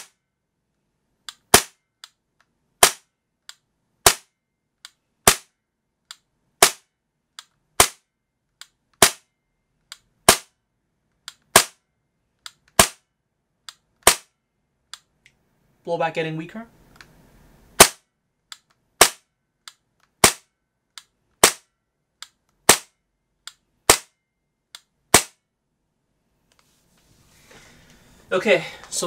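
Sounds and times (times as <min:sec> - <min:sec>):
airsoft pistol shots: 0:01.5 - 0:01.8, 0:02.8 - 0:03.1, 0:04.0 - 0:04.3, 0:05.2 - 0:05.5, 0:06.6 - 0:06.9, 0:07.8 - 0:08.0, 0:09.0 - 0:09.3, 0:10.2 - 0:10.5, 0:11.5 - 0:11.8, 0:12.7 - 0:13.0, 0:14.0 - 0:14.3, 0:17.8 - 0:18.1, 0:19.0 - 0:19.3, 0:20.2 - 0:20.5, 0:21.4 - 0:21.7, 0:22.6 - 0:22.9, 0:23.9 - 0:24.1, 0:25.1 - 0:25.4.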